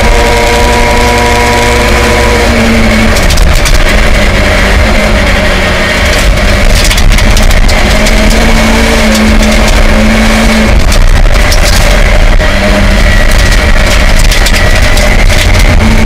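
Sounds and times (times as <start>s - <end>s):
rally car engine under load: 0.0s - 16.0s
gravel rattling against underbody: 1.0s - 16.0s.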